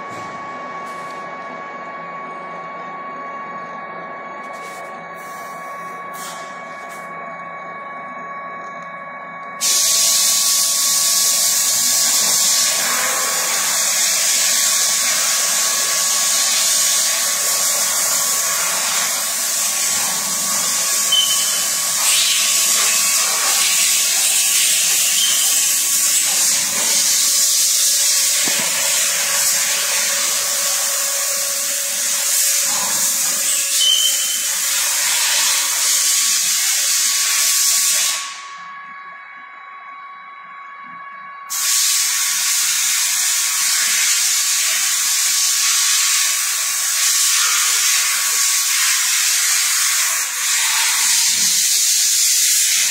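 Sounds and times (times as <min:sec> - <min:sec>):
loud steady hiss: 0:09.6 - 0:38.4, 0:41.5 - 0:52.9.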